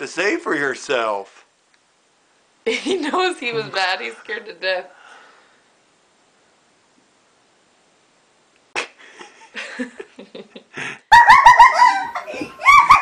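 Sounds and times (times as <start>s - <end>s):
person laughing loudly: 8.8s - 13.0s.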